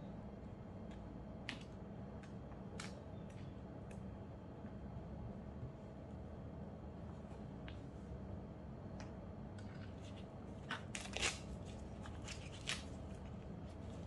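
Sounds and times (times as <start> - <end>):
onion skin crackling: 10.1 - 14.0.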